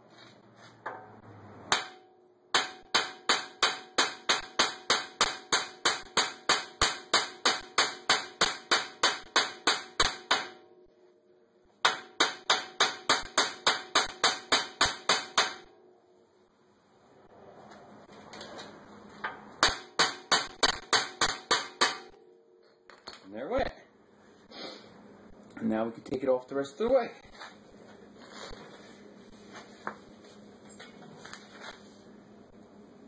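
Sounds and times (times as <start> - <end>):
hammer striking steel: 0.8 - 10.6, 11.8 - 15.7, 19.6 - 22.2.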